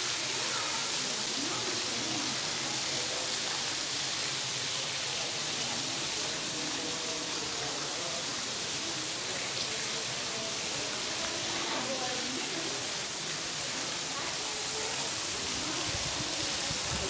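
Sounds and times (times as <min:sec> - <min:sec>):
faint murmuring: 0:05.0 - 0:17.0.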